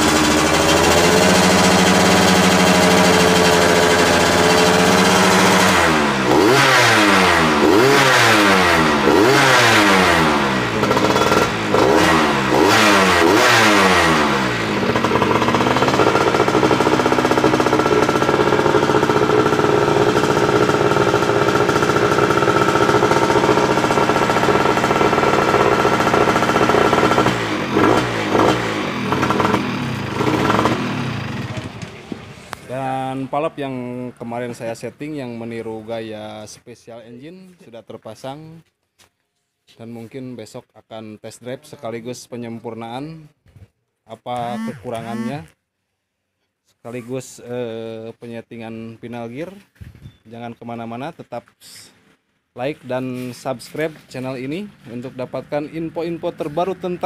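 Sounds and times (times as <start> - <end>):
two-stroke engine revving: 0.0 - 34.6, 44.4 - 45.6, 53.9 - 57.0.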